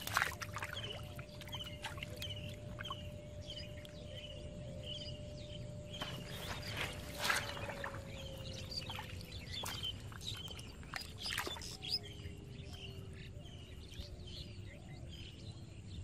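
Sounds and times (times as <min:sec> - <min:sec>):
hands squelching in wet mud: 0:00.0 - 0:03.0, 0:06.0 - 0:12.0
small birds chirping: 0:00.0 - 0:16.0.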